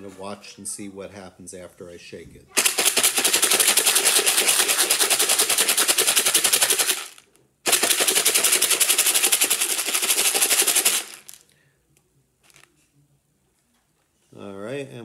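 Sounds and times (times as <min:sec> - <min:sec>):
dry pasta rattling in plastic container: 0:02.6 - 0:11.4.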